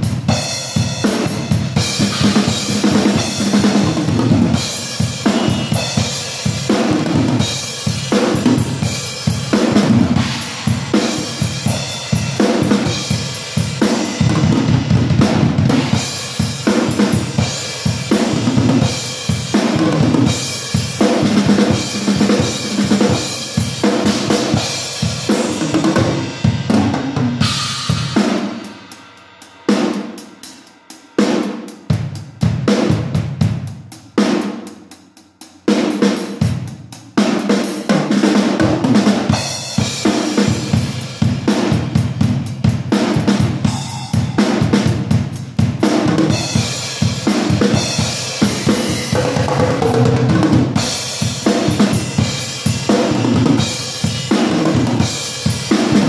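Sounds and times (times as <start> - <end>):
drum kit groove: 0.0 - 56.0.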